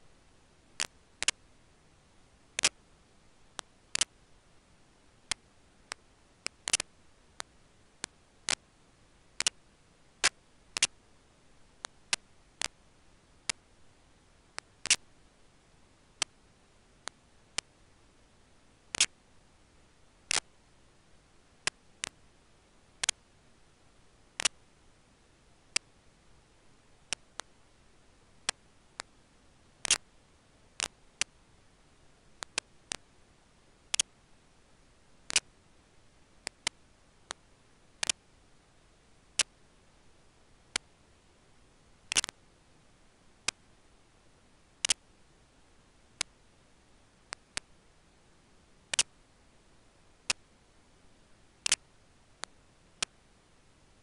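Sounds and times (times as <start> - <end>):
faint steady hiss: 0.0 - 54.0
sharp irregular clicks: 0.8 - 1.4, 2.6 - 2.8, 3.5 - 4.2, 5.3 - 8.6, 9.4 - 9.6, 10.2 - 11.0, 13.4 - 13.6, 14.5 - 15.1, 16.2 - 16.4, 18.9 - 19.2, 20.3 - 20.5, 23.0 - 23.2, 24.4 - 24.6, 27.1 - 27.5, 29.8 - 30.1, 30.8 - 31.4, 32.4 - 33.1, 33.9 - 34.1, 35.3 - 35.5, 36.4 - 37.4, 38.0 - 38.2, 42.1 - 42.4, 44.8 - 45.1, 48.9 - 49.2, 50.3 - 50.5, 51.6 - 53.2.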